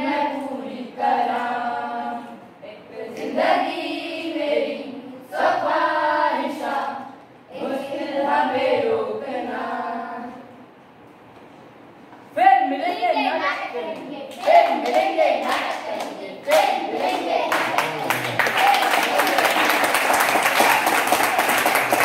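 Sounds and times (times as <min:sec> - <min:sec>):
children singing unaccompanied: 0:00.0 - 0:10.5, 0:13.3 - 0:18.0.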